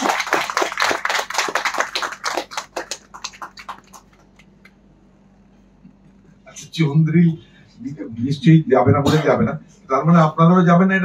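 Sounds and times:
small audience applauding: 0.0 - 4.7.

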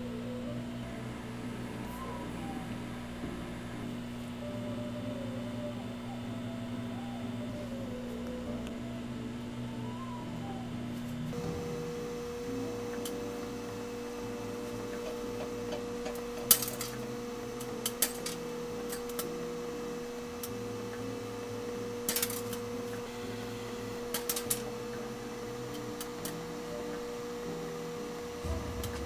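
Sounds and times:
microwave oven humming: 0.0 - 29.0
popcorn popping: 11.3 - 27.3.

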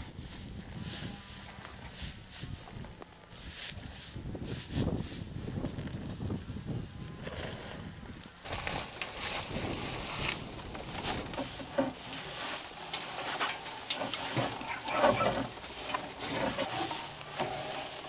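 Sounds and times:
dry hay rustling and crackling: 0.0 - 18.0
farm animal calls: 11.3 - 18.0.

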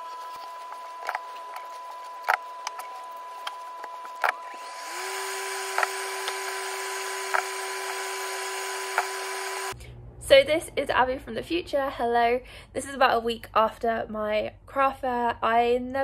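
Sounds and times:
extractor fan humming: 0.0 - 10.6.

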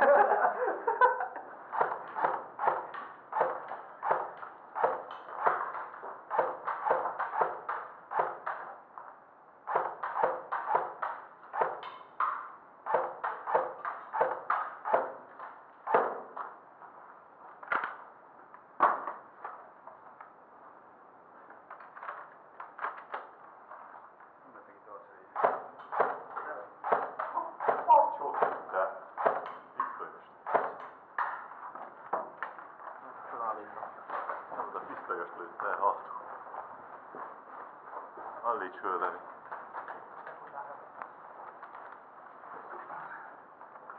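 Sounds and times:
airsoft guns firing: 1.7 - 8.8, 9.6 - 16.6, 25.4 - 29.7, 30.4 - 31.5.

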